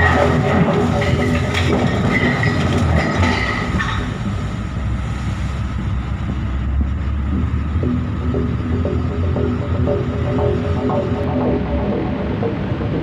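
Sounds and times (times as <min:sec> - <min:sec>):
deep rumble: 0:00.0 - 0:13.0.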